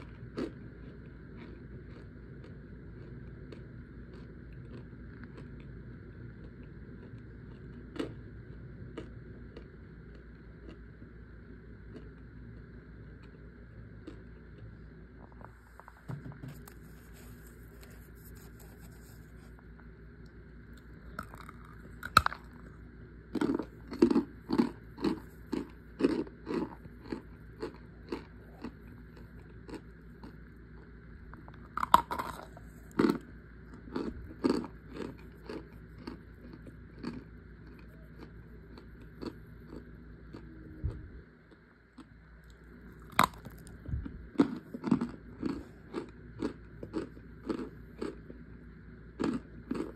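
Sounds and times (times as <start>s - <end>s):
biting cornstarch: 0.0s - 5.8s, 16.5s - 40.4s, 42.0s - 48.4s
crunching chews: 0.0s - 49.9s.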